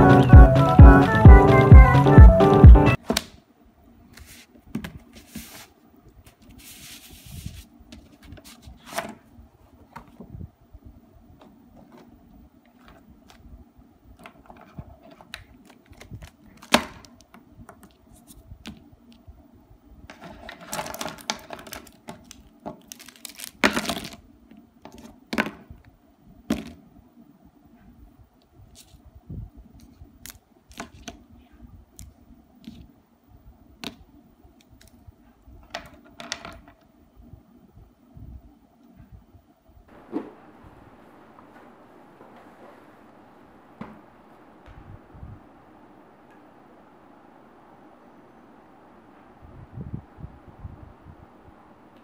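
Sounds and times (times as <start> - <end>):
plastic packaging rustling: 20.3 - 24.2.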